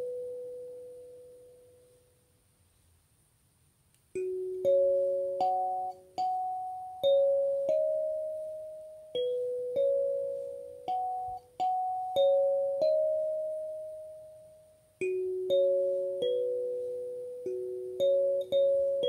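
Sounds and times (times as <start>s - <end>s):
kalimba melody: 4.2s - 19.0s.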